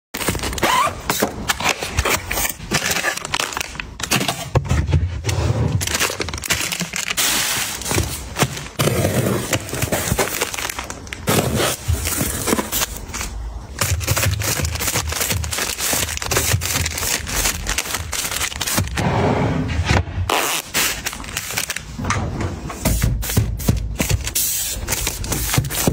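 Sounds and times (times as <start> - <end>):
plastic wrapping crinkling: 0.2 - 4.3, 5.8 - 19.0, 20.5 - 21.9
packs clicking and knocking: 0.2 - 5.2, 5.8 - 19.0.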